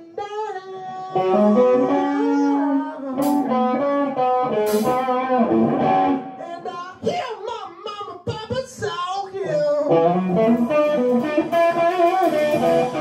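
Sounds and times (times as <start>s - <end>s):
electric guitar lead line: 0.0s - 7.1s, 9.5s - 13.0s
hissy cymbal hits: 10.3s - 13.0s.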